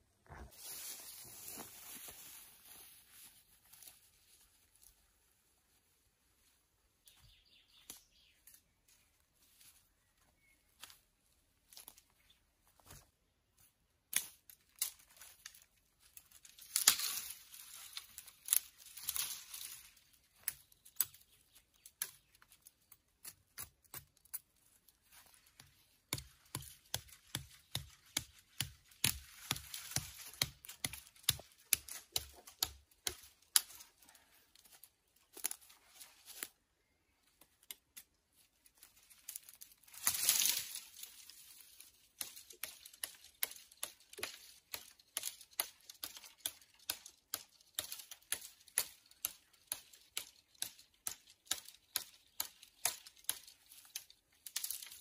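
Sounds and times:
footsteps through undergrowth: 0.3 - 23.7, 24.3 - 55.0
twigs snapping: 14.1 - 36.6, 37.2 - 55.0
rustling and tearing: 38.6 - 55.0.

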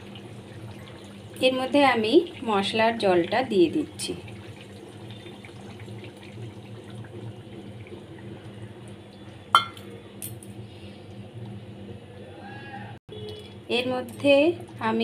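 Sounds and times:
liquid bubbling in pan: 0.0 - 9.8
liquid poured into hot oil: 2.1 - 9.0.

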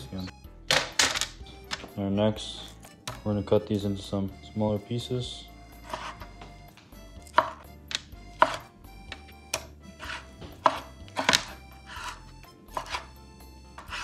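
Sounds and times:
knife chopping on wooden board: 5.8 - 6.3, 7.2 - 14.0.

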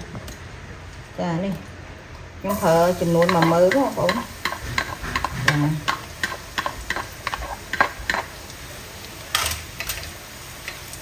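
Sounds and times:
oil sizzling: 2.0 - 11.0
spatula tapping ceramic bowl: 3.2 - 8.3.

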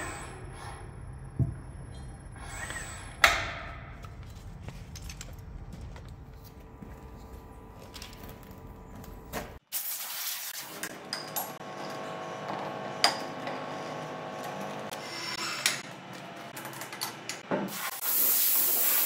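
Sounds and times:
low workshop hum: 0.0 - 19.0
bright hiss: 17.7 - 19.0.

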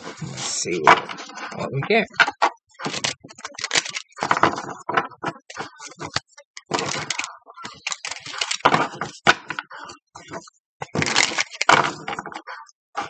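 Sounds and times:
cards being shuffled: 2.8 - 9.6, 10.8 - 12.4.

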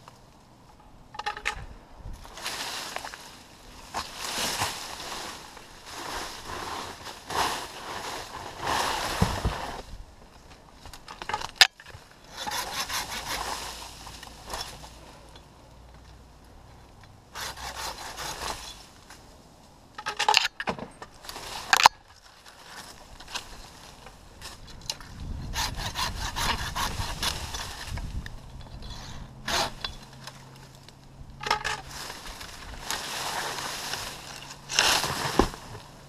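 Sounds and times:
dry leaves and branches rustling: 0.0 - 36.0.

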